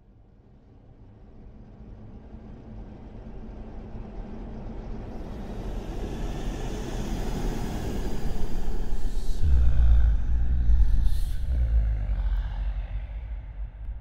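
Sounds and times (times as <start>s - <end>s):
low tension drone: 5.0s - 14.0s.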